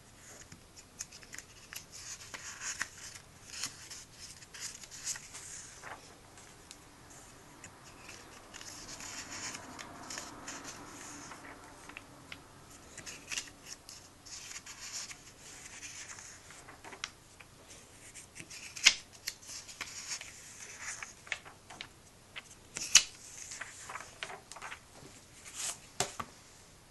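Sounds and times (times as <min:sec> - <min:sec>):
paper pages rustling: 0:00.2 - 0:26.3
sharp paper snaps: 0:18.4 - 0:19.4, 0:22.8 - 0:23.2.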